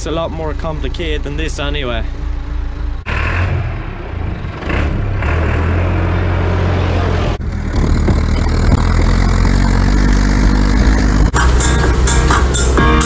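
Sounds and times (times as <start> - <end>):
tractor engine running: 0.0 - 3.3, 7.0 - 13.0
tractor engine heard from cab: 0.0 - 13.0.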